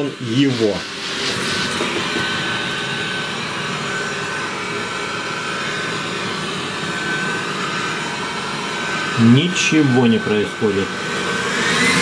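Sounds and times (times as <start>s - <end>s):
robot vacuum running: 0.0s - 12.0s
thin high whine: 7.9s - 11.0s.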